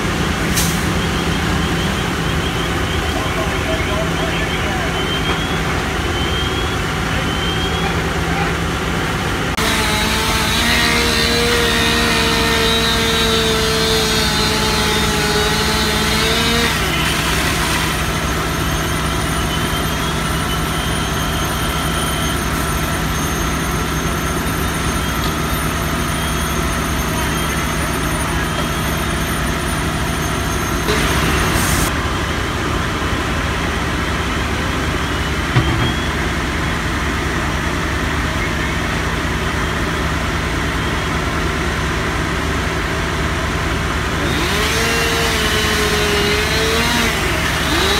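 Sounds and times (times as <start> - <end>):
fire engines idling: 0.0 - 47.9
whining tone: 9.6 - 31.9.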